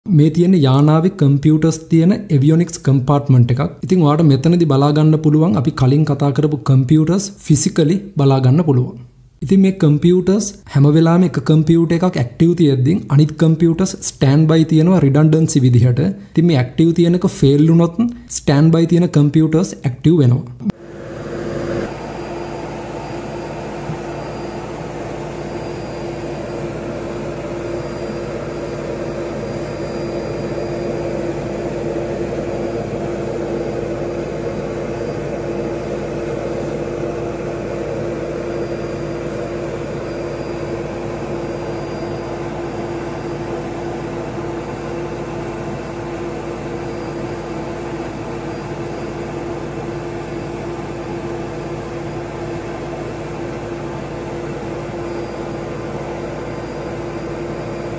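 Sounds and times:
cooling fans whirring: 0.0 - 57.9
steady mid-pitched tone: 20.7 - 49.7.

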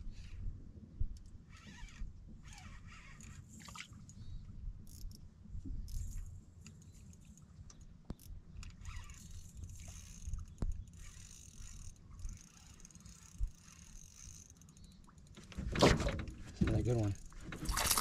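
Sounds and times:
fishing reel whirring: 1.5 - 3.8, 8.2 - 15.4
sharp reel clicks: 8.2 - 15.4.

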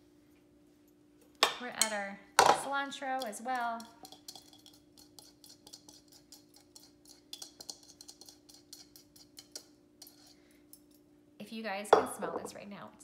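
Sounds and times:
light clicks and taps of bowls: 3.2 - 11.1.

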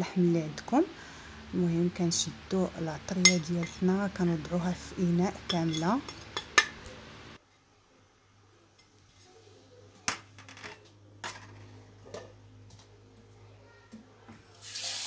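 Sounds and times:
low steady hum: 0.0 - 8.9
spoon scraping ceramic bowl: 5.4 - 6.7
dishes clicking: 5.5 - 6.9.

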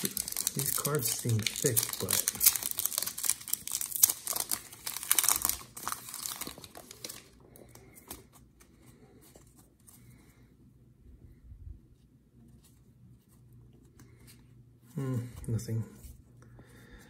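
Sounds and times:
foil wrapper crinkling and tearing: 0.0 - 8.2
cards rustling: 0.0 - 10.0.

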